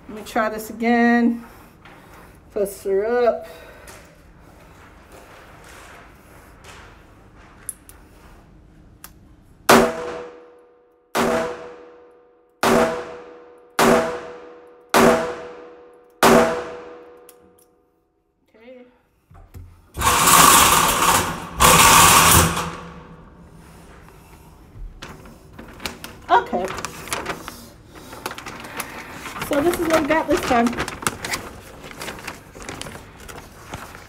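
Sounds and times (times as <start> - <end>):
revolver shots ringing indoors: 9.6 - 17.9, 20.0 - 23.4
loud rustling: 20.0 - 24.0, 25.0 - 34.0.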